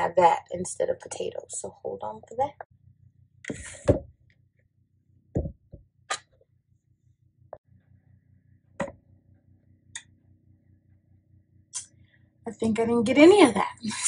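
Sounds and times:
low steady hum: 0:00.0 - 0:14.0
kitchenware knocks and taps: 0:05.4 - 0:05.8.

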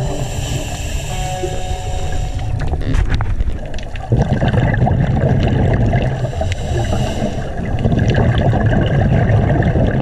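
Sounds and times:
underwater bubbles gurgling: 0:00.0 - 0:10.0.

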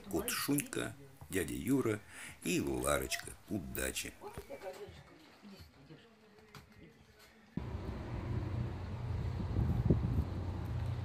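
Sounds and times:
wind buffeting microphone: 0:08.3 - 0:11.0.

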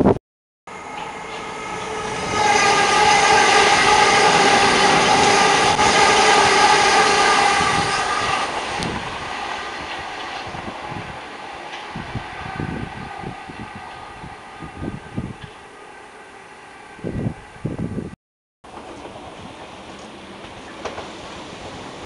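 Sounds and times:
passenger train passing: 0:00.7 - 0:22.0.

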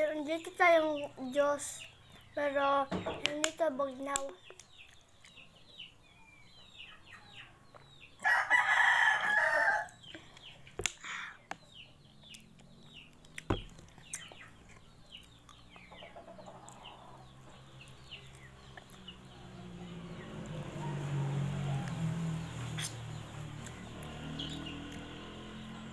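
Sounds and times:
small birds chirping: 0:00.0 - 0:25.9
rooster crowing: 0:08.2 - 0:10.0.

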